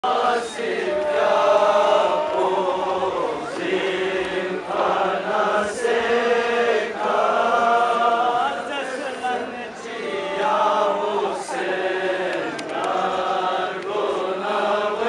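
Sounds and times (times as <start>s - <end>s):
voices chanting along: 0.0s - 15.0s
man chanting a lament: 7.3s - 11.6s.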